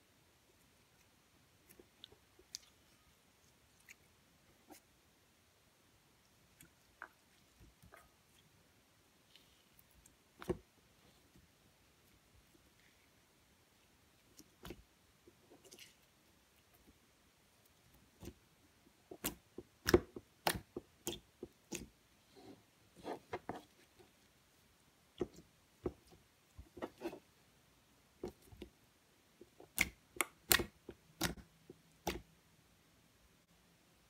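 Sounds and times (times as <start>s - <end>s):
slime sticky pops and wet clicks: 29.7s - 31.4s.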